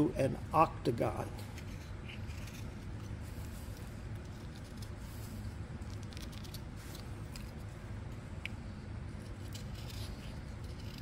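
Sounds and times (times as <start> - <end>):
steady low hum: 0.0 - 11.0
knife scraping wood: 1.5 - 5.3, 9.2 - 11.0.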